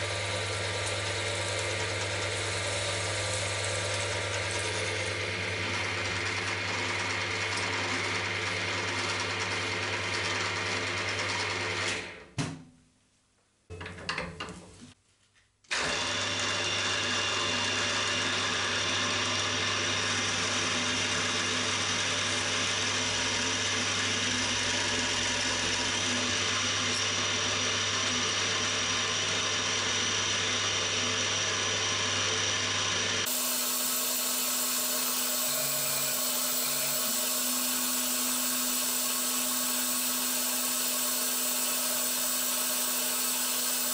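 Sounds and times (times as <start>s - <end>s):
milling machine gear whine and hum: 33.3s - 43.9s.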